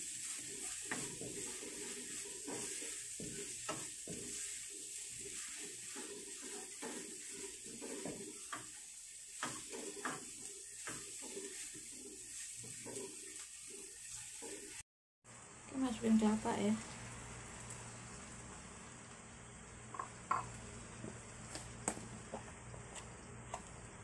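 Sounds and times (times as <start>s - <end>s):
paste sizzling in oil: 0.0s - 14.8s
wooden spatula scraping pan: 0.0s - 14.8s.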